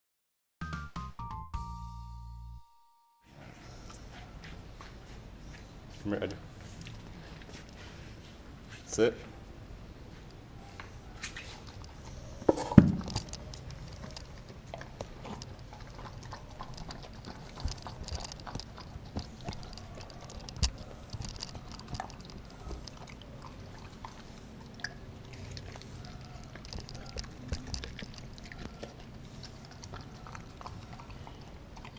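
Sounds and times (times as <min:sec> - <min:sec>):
dog chewing crunchy food: 0:11.0 - 0:31.9.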